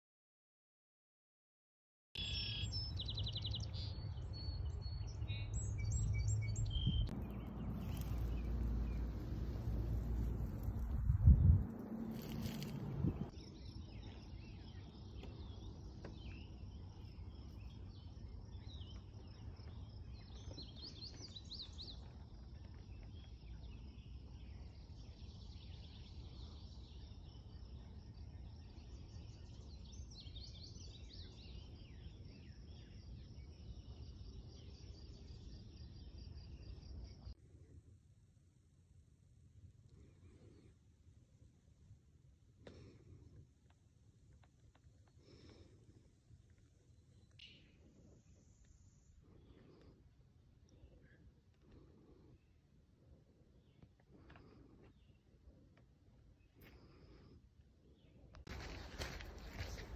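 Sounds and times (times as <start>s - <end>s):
birds chirping: 2.2s - 37.3s, 57.9s - 59.9s
rustling: 7.2s - 13.3s.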